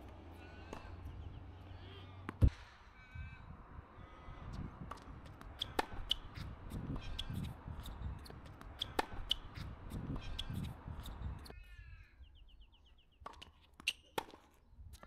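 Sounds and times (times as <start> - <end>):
crow cawing: 2.9 - 4.4.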